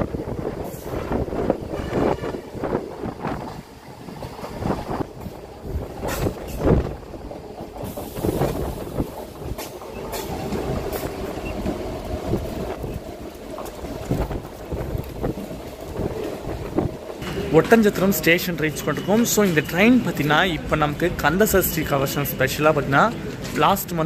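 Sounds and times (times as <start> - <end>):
rush of air: 0.0 - 13.1
train rumble: 0.0 - 24.0.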